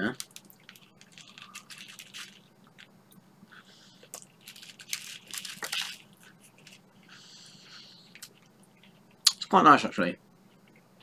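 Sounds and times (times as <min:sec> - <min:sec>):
person crunching crisp snack: 0:00.1 - 0:02.9, 0:03.6 - 0:09.4.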